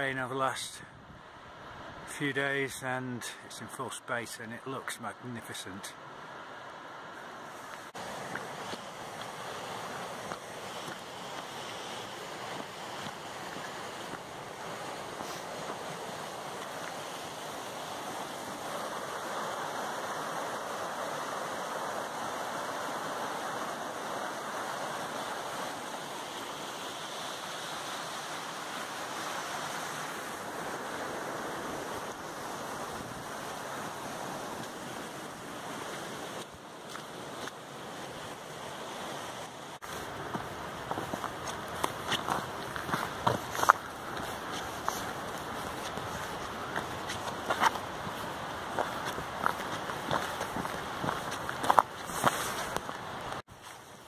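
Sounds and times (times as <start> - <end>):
water rushing over rocks: 4.2 - 54.0
footsteps on path: 7.5 - 19.0, 35.6 - 38.4, 39.8 - 53.9.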